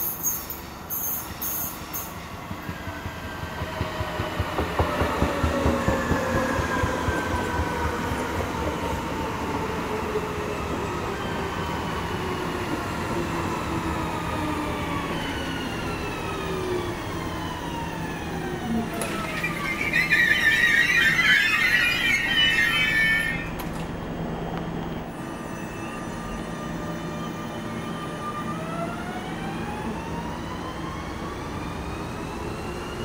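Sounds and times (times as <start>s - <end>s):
loud brake squeal: 0.0s - 2.1s, 19.0s - 23.6s, 25.1s - 26.5s
train wheel rumble and knocks: 2.5s - 8.2s.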